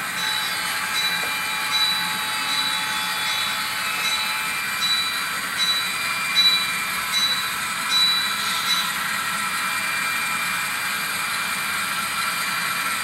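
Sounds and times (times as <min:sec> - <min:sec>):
pulsing high tone: 0:00.0 - 0:09.0
model locomotive diesel engine drone: 0:00.0 - 0:13.0.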